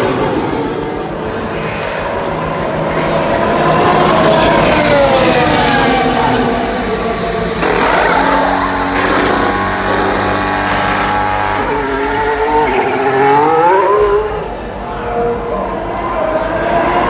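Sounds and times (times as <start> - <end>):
racing car engine: 0.0 - 17.0
short noisy bursts: 7.6 - 13.1.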